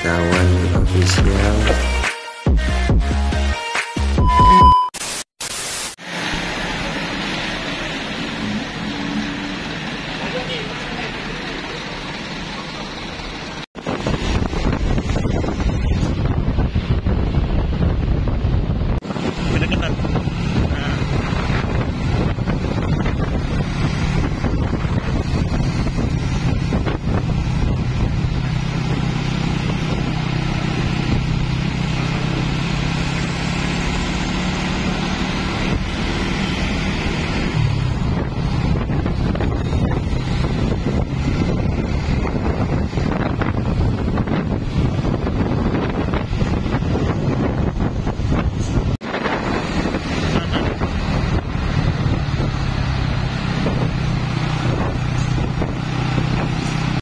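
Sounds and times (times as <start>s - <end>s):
road traffic engine drone: 0.0s - 3.3s, 4.2s - 57.0s
tyre and wind noise: 13.8s - 57.0s.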